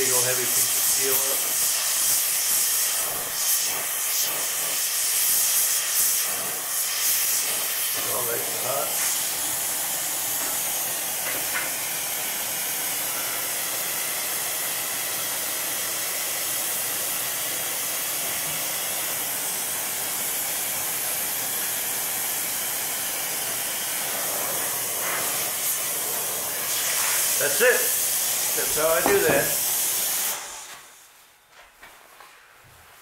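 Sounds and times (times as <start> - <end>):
gas torch flame hissing: 0.0 - 31.2.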